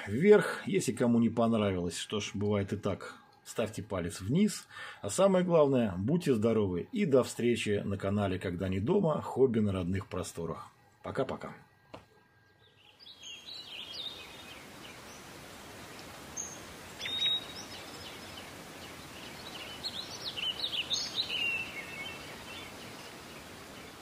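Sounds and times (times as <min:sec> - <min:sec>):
steady outdoor hiss: 0:00.0 - 0:24.0
birds chirping and singing: 0:12.4 - 0:24.0.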